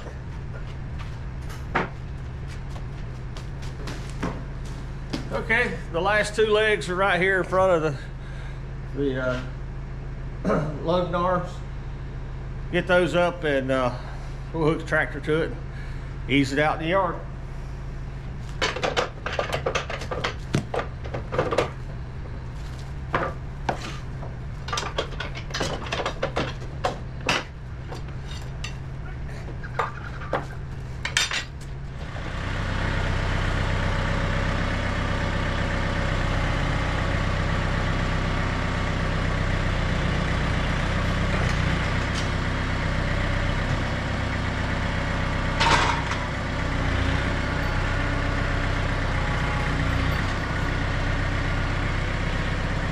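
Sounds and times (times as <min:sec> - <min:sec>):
low engine hum: 0:00.0 - 0:52.9
tractor engine running: 0:00.0 - 0:52.9
metal parts clanking and clicking: 0:24.6 - 0:28.8, 0:29.8 - 0:31.6.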